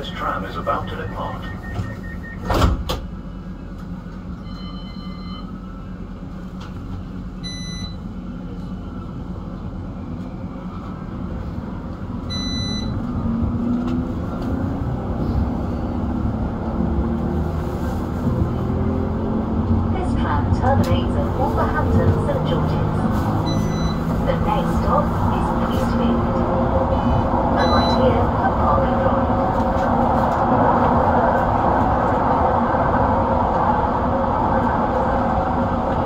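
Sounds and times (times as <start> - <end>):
tram motor whine: 0.0 - 36.0
tram running along track: 0.0 - 36.0
short electronic beeps: 0.5 - 2.5, 12.3 - 13.0, 23.4 - 24.1, 27.6 - 28.0.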